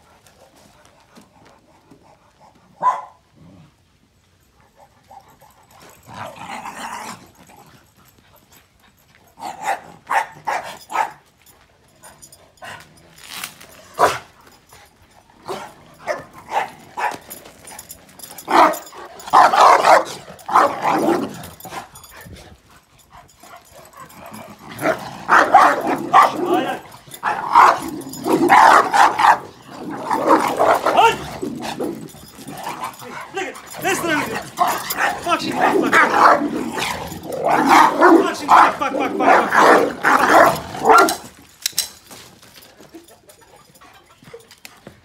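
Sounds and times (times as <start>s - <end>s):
dogs barking: 2.8s - 3.2s, 9.4s - 11.2s, 14.0s - 14.3s, 15.4s - 17.4s, 18.3s - 22.1s, 23.4s - 41.3s.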